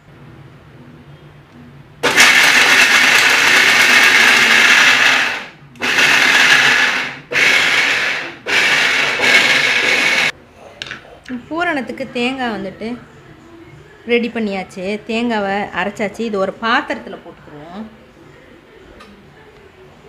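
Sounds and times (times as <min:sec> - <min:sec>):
mixer grinder grinding: 0:02.0 - 0:10.3.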